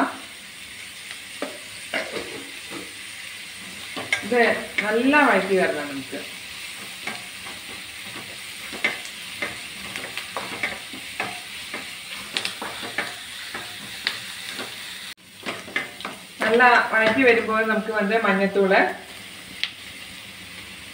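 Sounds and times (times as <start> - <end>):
onions sizzling in oil: 0.0 - 20.9
spatula scraping and clicking: 6.8 - 14.8.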